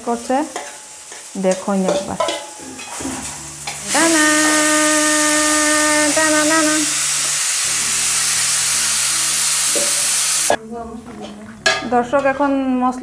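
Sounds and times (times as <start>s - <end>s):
steam hissing: 3.8s - 10.5s.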